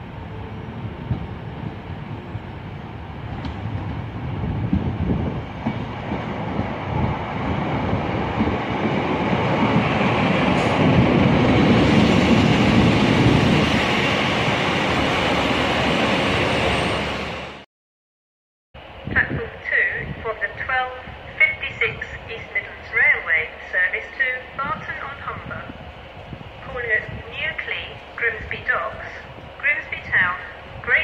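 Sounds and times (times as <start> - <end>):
diesel train engines: 0.0 - 17.6, 18.8 - 31.0
train wheels on rails: 3.2 - 17.1.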